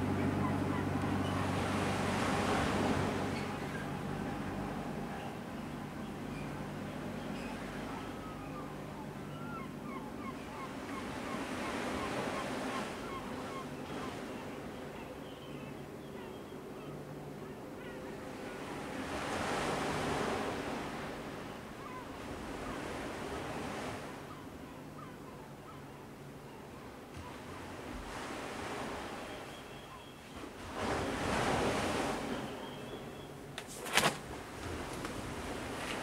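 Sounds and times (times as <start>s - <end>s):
surf washing ashore: 0.0s - 8.9s, 18.2s - 24.4s, 27.1s - 36.0s
waves washing on shore: 30.5s - 32.6s.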